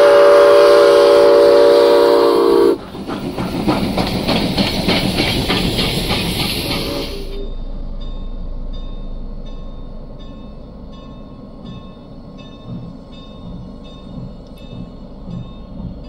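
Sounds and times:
steam locomotive rumbling: 0:00.0 - 0:16.0
locomotive bell ringing: 0:06.8 - 0:16.0.

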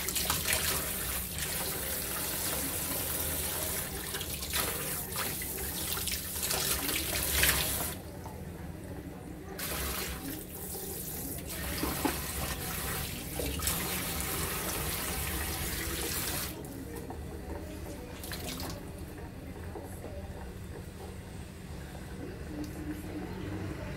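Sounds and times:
hands rinsing basin: 0:00.0 - 0:08.3, 0:09.6 - 0:19.1
faucet water running into sink: 0:00.0 - 0:08.4, 0:09.6 - 0:19.1.

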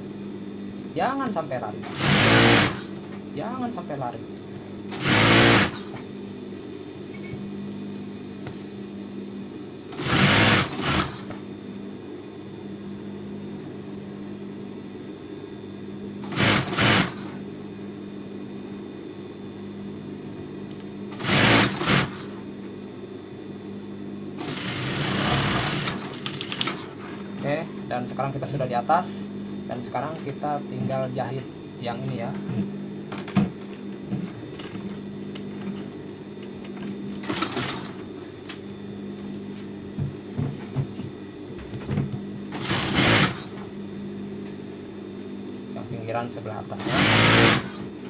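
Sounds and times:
electric motor humming: 0:01.6 - 0:06.1, 0:09.9 - 0:11.4, 0:16.2 - 0:17.5, 0:21.0 - 0:22.4, 0:24.4 - 0:35.8, 0:42.0 - 0:43.8, 0:46.7 - 0:48.0
sewing machine stitching: 0:01.8 - 0:02.9, 0:04.9 - 0:05.9, 0:10.0 - 0:11.2, 0:16.2 - 0:17.3, 0:21.2 - 0:22.2, 0:24.4 - 0:26.9, 0:42.5 - 0:43.5, 0:46.8 - 0:47.8.

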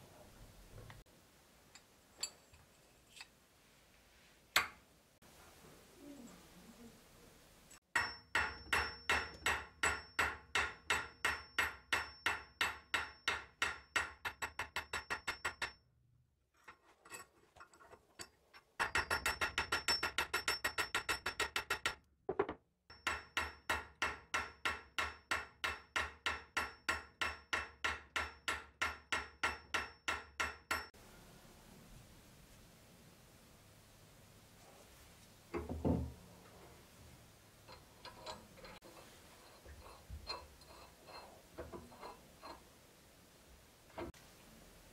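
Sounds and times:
small hammer tapping on steel: 0:07.9 - 0:15.8.

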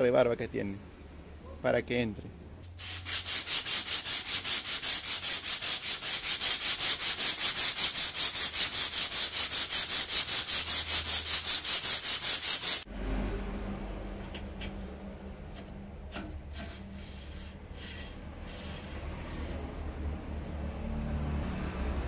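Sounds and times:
sandpaper scraping steel bar: 0:02.8 - 0:12.9, 0:16.1 - 0:19.7
low hum: 0:12.9 - 0:16.2.

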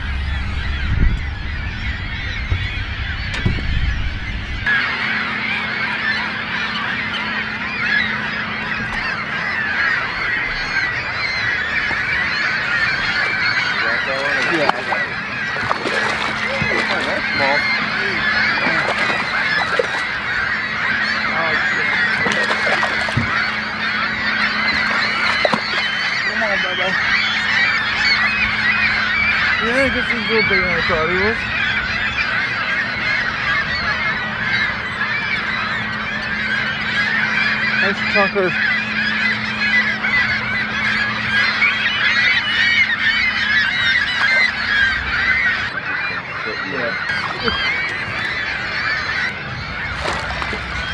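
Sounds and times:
faint low hum: 0:00.0 - 0:29.7
flock of birds honking: 0:00.0 - 0:50.9.

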